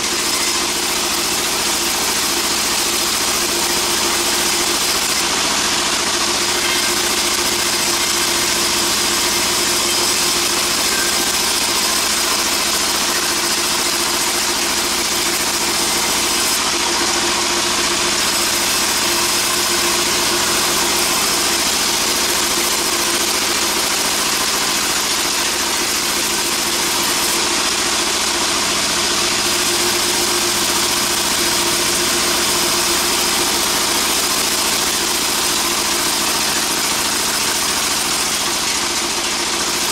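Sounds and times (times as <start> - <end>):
thin high whine: 0.0 - 34.2
band saw machinery droning: 0.0 - 39.9.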